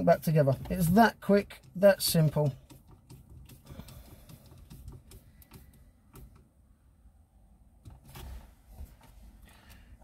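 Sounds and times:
clicks and taps on plastic trim: 0.5s - 6.5s.

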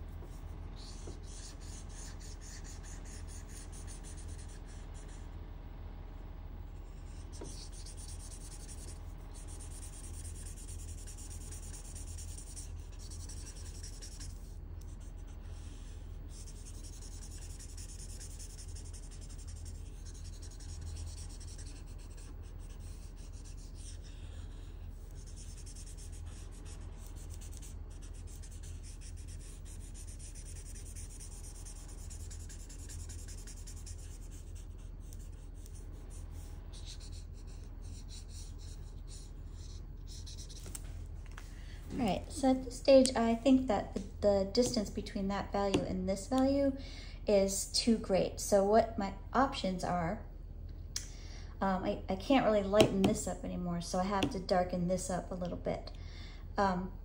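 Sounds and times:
steady low hum: 0.0s - 57.0s
marker scratching on paper: 0.2s - 5.2s, 6.8s - 40.8s, 44.0s - 45.0s, 45.7s - 45.9s, 52.8s - 53.3s, 54.2s - 54.4s.

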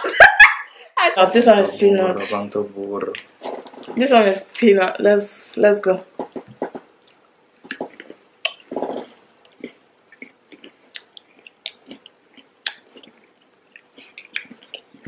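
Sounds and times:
people chewing and crunching: 3.1s - 4.0s, 6.2s - 15.0s
mouth clicks: 6.2s - 13.1s, 13.8s - 15.0s.

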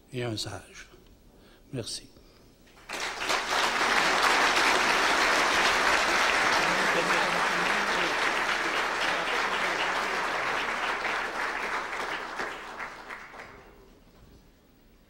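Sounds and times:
audience applauding: 2.8s - 13.8s.

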